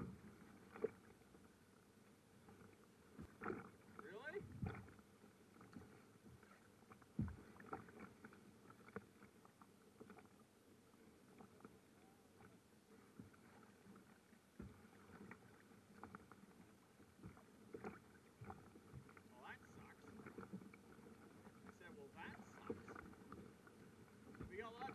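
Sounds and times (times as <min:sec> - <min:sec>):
waves lapping against kayak: 0:00.0 - 0:24.9.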